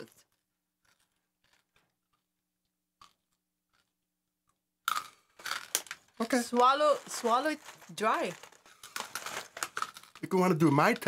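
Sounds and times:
snack crunching while chewed: 0:03.0 - 0:04.0.

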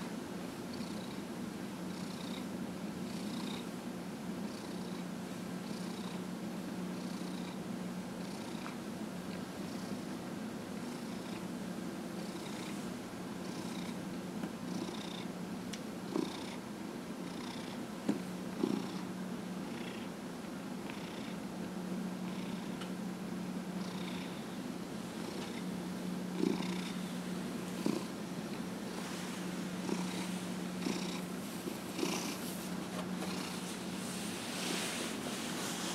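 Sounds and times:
cat purring: 0:00.7 - 0:01.2, 0:01.9 - 0:02.5, 0:03.1 - 0:03.7, 0:05.6 - 0:06.2, 0:07.0 - 0:07.6, 0:08.2 - 0:08.7, 0:10.8 - 0:11.4, 0:12.2 - 0:12.8, 0:13.4 - 0:14.0, 0:14.7 - 0:15.3, 0:16.1 - 0:16.6, 0:17.2 - 0:17.8, 0:18.6 - 0:20.1, 0:20.8 - 0:21.4, 0:22.2 - 0:22.8, 0:23.8 - 0:24.4, 0:25.2 - 0:25.7, 0:26.3 - 0:35.9.

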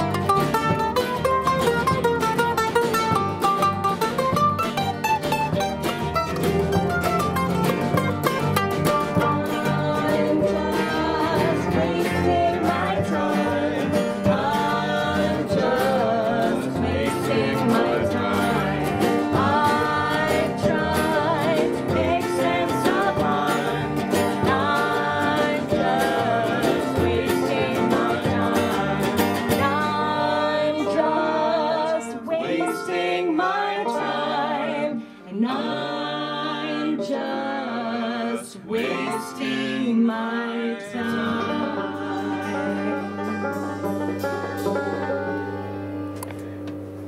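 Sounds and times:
steady drum beat: 0:00.0 - 0:30.0
banjo: 0:00.0 - 0:47.0
bluegrass band playing: 0:00.0 - 0:47.0.

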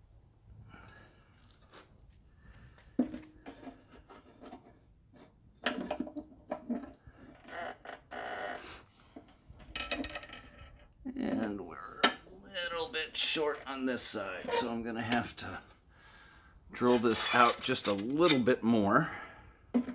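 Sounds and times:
metal tubes knocking and clinking: 0:09.6 - 0:10.8.

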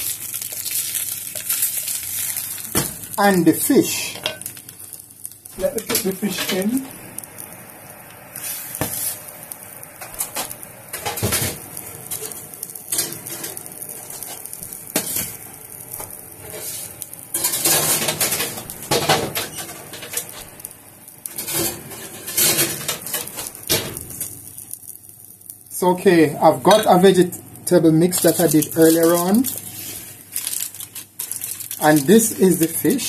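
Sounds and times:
baking tray and oven racks clattering: 0:17.3 - 0:20.4, 0:21.3 - 0:24.1.

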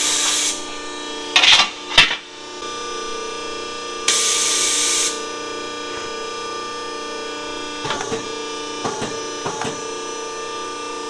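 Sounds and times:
hiss: 0:00.0 - 0:00.6, 0:04.1 - 0:05.2
machine hum: 0:00.0 - 0:11.0.

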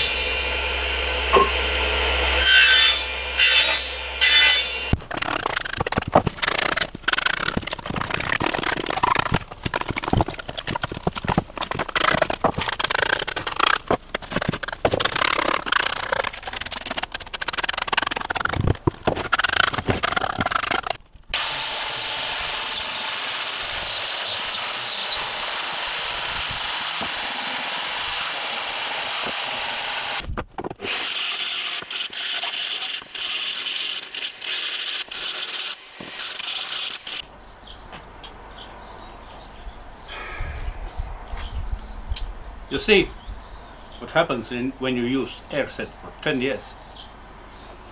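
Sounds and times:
angle grinder sanding log: 0:00.0 - 0:30.2, 0:30.8 - 0:37.2
scraping and rubbing on wood: 0:02.4 - 0:21.0, 0:29.0 - 0:37.2.

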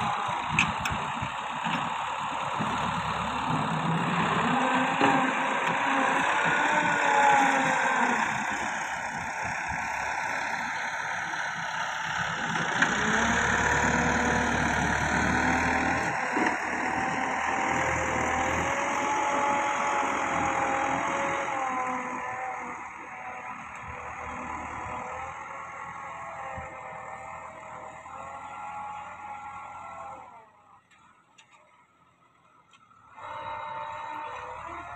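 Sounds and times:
tractor diesel engine under load: 0:00.0 - 0:34.9.

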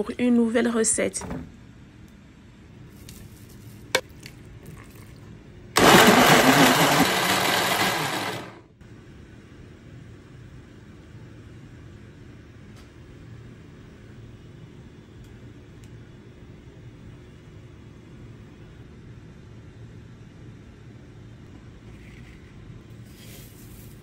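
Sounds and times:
countertop blender running: 0:05.8 - 0:08.7.

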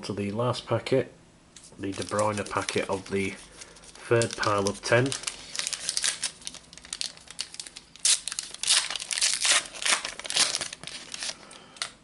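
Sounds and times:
plastic wrapper crinkling and tearing: 0:01.8 - 0:12.0.

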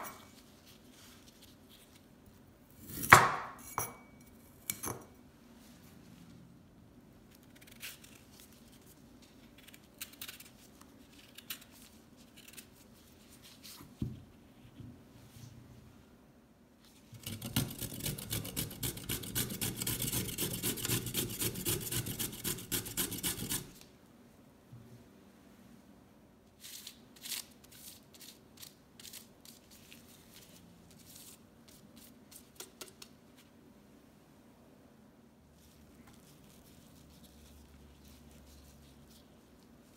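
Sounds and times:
vegetable peeler scraping: 0:17.2 - 0:23.8.

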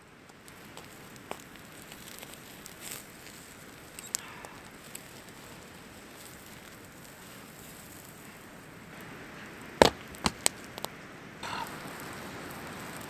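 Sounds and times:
crackling wood fire: 0:00.0 - 0:13.0
steak sizzling on grill: 0:00.5 - 0:08.2, 0:11.4 - 0:13.0.

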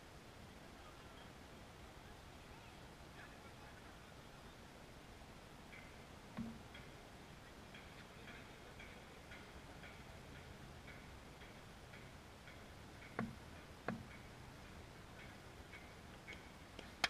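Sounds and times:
faint regular ticking: 0:05.7 - 0:17.0
sharp knocks: 0:06.3 - 0:06.8, 0:13.1 - 0:14.2.

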